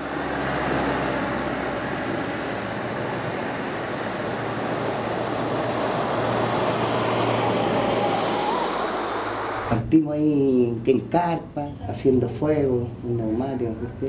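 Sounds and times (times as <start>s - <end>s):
low engine hum: 0.0s - 10.0s
road and wind noise: 0.0s - 10.0s.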